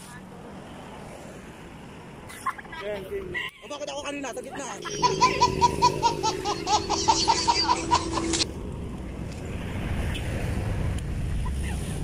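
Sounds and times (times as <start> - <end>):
rapid high-pitched laughter: 4.8 - 8.4.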